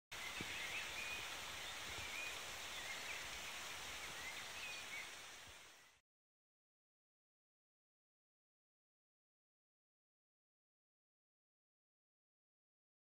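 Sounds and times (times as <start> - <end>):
small birds chirping: 0.1 - 6.0
forest hiss: 0.2 - 6.0.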